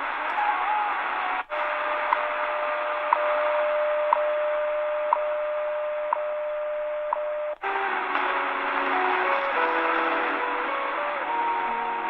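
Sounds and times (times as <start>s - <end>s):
radio static hiss: 0.0s - 6.2s, 7.5s - 12.0s
music on radio: 0.0s - 12.0s
steady radio tone: 0.0s - 12.0s
radio time signal ticks: 3.1s - 5.4s, 6.1s - 12.0s.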